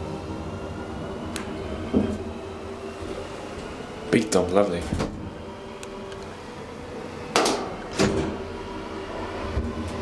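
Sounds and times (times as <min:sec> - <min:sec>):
elevator steady hum: 0:00.0 - 0:10.0
elevator sharp clunks: 0:07.4 - 0:08.5
elevator door shutting and latching: 0:07.4 - 0:08.6.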